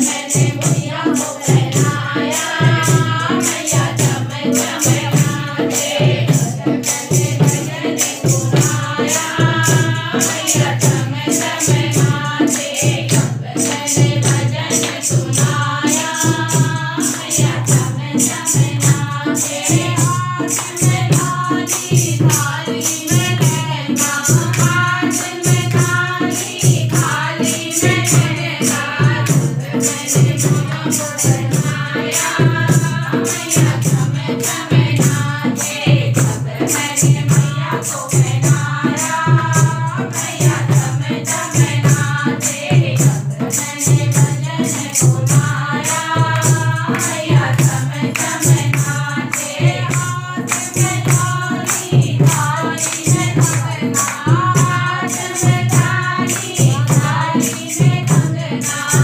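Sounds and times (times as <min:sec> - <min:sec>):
women singing together: 0:00.0 - 0:59.0
hand claps: 0:14.8 - 0:15.3, 0:46.4 - 0:56.6.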